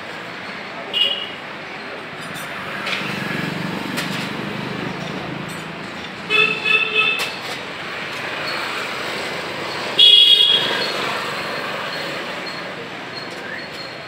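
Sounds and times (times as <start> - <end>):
street traffic noise: 0.0 - 14.0
vehicle horns honking: 0.9 - 1.4, 6.2 - 7.4, 9.9 - 11.0.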